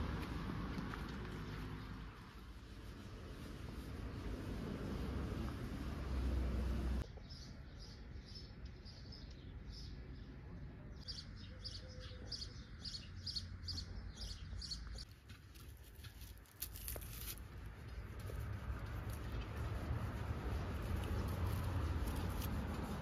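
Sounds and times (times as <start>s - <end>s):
bird chirping: 7.0s - 15.1s.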